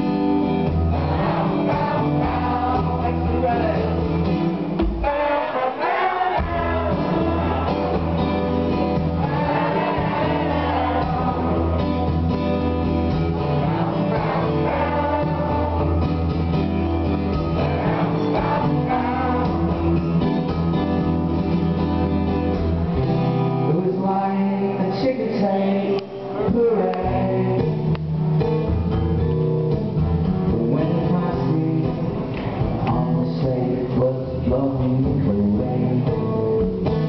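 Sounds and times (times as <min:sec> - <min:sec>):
strummed acoustic guitar: 0:00.0 - 0:37.0
man singing: 0:00.8 - 0:12.1, 0:23.6 - 0:27.9, 0:30.4 - 0:37.0.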